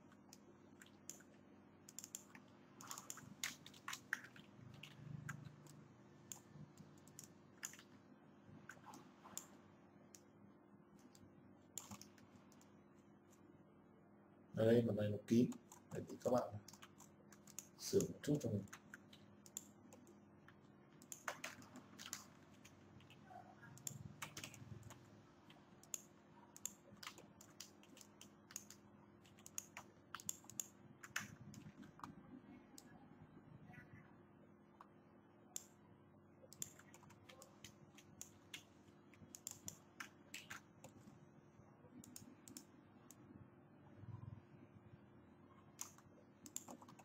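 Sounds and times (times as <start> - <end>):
keyboard and mouse clicks: 0.1 - 8.0, 8.7 - 10.3, 11.0 - 12.7, 15.5 - 23.2, 23.8 - 32.2, 36.5 - 41.1, 42.0 - 43.2, 45.8 - 47.0.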